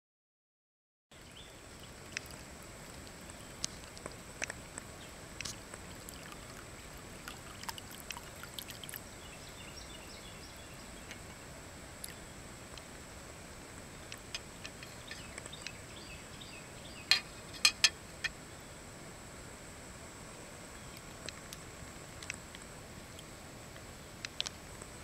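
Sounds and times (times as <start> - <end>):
sharp drips: 2.0 - 9.2
water trickling into bowl: 5.8 - 9.2.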